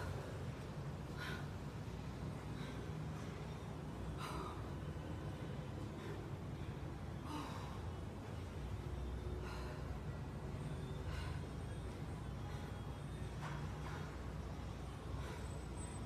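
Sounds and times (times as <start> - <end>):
woman breathing hard: 0.0 - 5.0, 5.8 - 8.5, 9.2 - 13.3, 15.0 - 16.0
steady low hum: 0.0 - 16.0.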